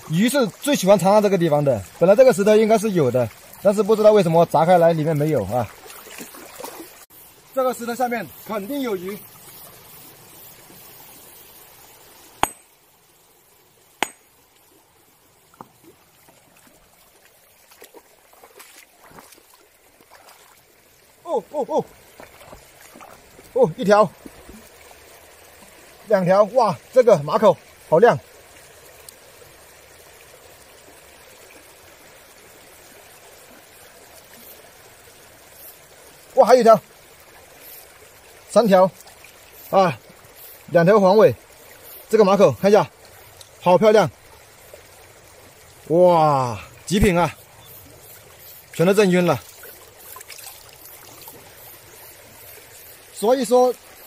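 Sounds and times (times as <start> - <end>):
stream running over rocks: 0.0 - 54.0
water: 0.0 - 54.0
sledgehammer striking rock: 12.4 - 12.7, 14.0 - 14.2.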